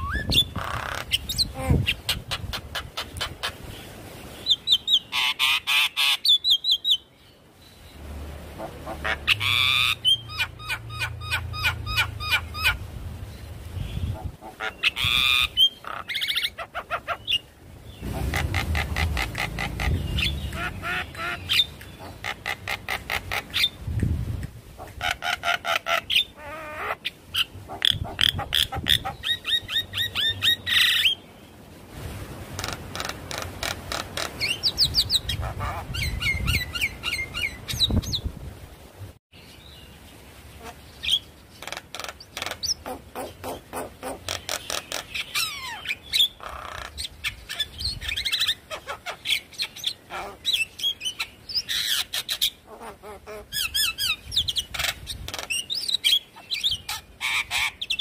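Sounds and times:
bird chattering song: 0.0 - 3.6, 13.8 - 23.8, 40.6 - 58.0.

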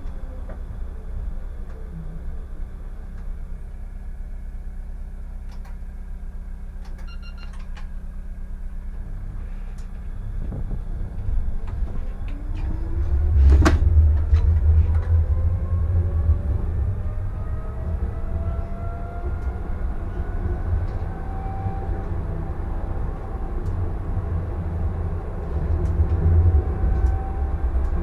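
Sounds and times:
tram rumbling on rails: 0.0 - 4.2, 5.1 - 28.0
short electronic beep: 7.0 - 7.6.

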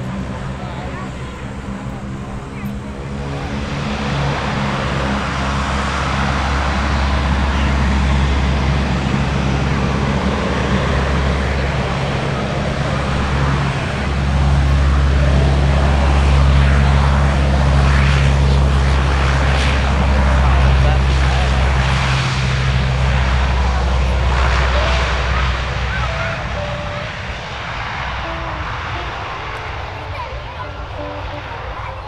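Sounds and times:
turboprop engines droning: 0.0 - 32.0.

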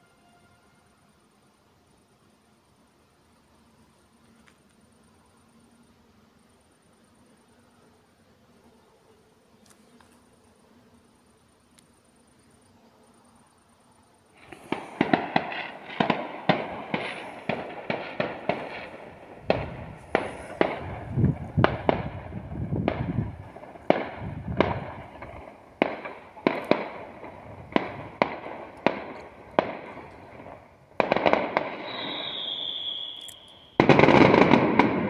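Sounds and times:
firework whistle: 0.0 - 1.0, 14.4 - 35.0
fireworks bangs: 14.4 - 35.0.

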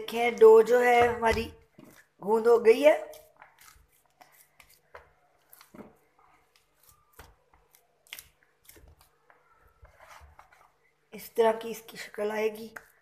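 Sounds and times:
dough squishing: 0.0 - 11.4.

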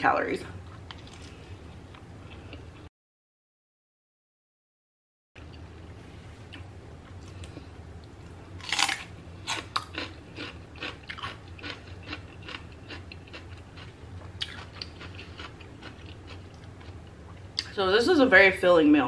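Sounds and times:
crunchy chewing: 8.6 - 17.4.

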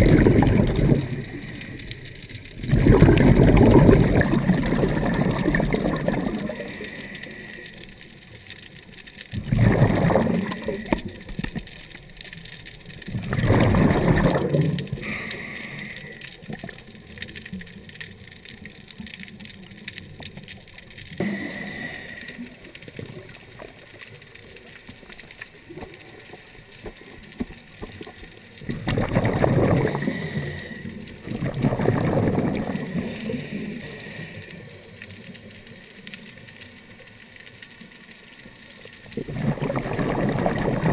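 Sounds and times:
regulator bubbles rushing out: 0.0 - 1.8, 2.5 - 6.9, 9.3 - 11.4, 13.1 - 15.2, 28.6 - 30.4, 31.2 - 33.2, 39.1 - 40.9
water wash: 0.0 - 40.9.

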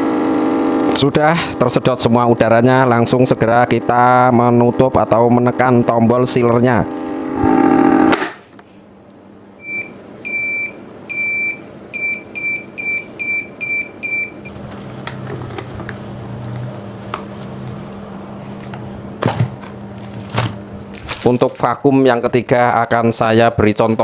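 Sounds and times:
low steady hum: 8.5 - 24.0
short beeps: 9.6 - 14.5.

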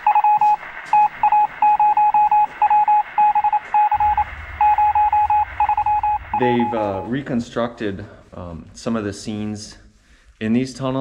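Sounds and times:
morse code beeps: 0.0 - 7.2
low hum: 0.0 - 8.8.

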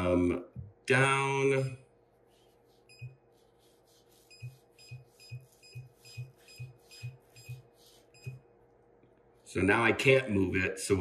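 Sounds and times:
touchscreen beeping: 4.3 - 7.6.

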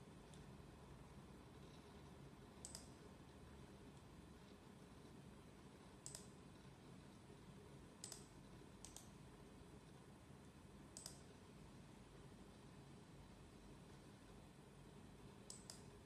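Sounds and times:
computer mouse clicks: 0.2 - 0.5, 2.6 - 3.0, 6.0 - 6.4, 8.0 - 9.2, 10.9 - 11.4, 15.4 - 15.9.

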